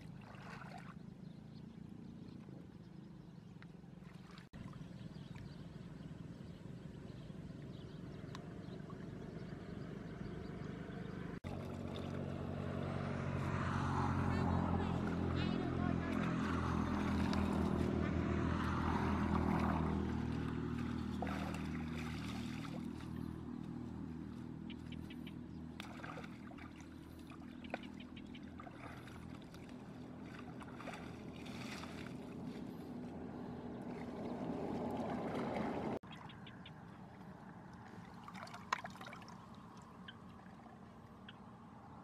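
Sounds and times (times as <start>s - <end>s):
engine drone: 0.0s - 42.0s
hands splashing in muddy water: 16.1s - 23.8s, 25.8s - 36.0s.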